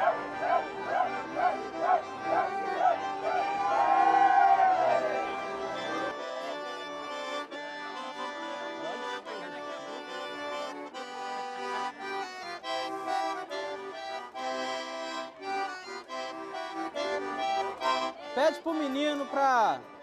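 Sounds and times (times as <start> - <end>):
accordion playing: 0.0 - 20.0.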